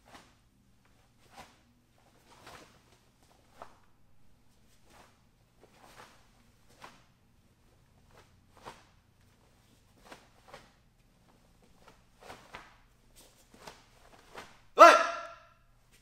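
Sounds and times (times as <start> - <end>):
bare feet on foam mats: 0.0 - 16.0.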